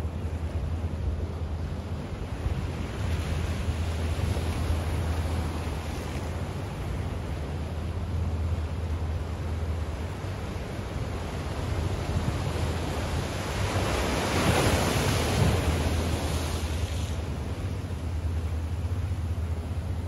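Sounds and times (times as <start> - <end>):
steady low rumble: 0.0 - 13.6, 15.3 - 20.0
waves washing against rocks: 11.5 - 17.8.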